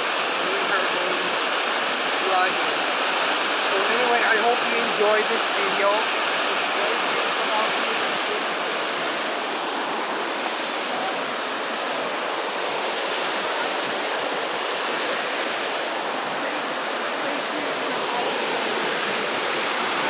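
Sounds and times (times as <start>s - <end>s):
water rushing over rocks: 0.0s - 20.0s.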